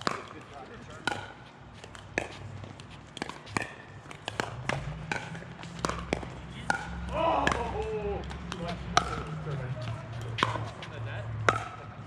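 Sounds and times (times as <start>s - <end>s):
paddle striking plastic ball: 0.0s - 0.4s, 1.0s - 2.3s, 3.2s - 7.8s, 8.4s - 10.8s, 11.4s - 12.0s
ball bouncing on court: 0.0s - 12.0s.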